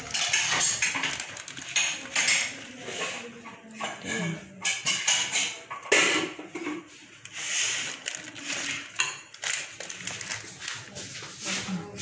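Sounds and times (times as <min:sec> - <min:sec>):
spoon scraping spice over fish: 0:06.9 - 0:12.0.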